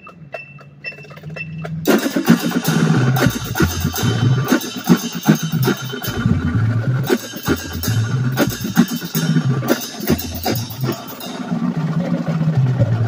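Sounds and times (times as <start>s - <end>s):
drum and cymbal hits: 0.0s - 13.0s
marching percussion section: 0.0s - 13.0s
low bass note: 5.8s - 8.5s.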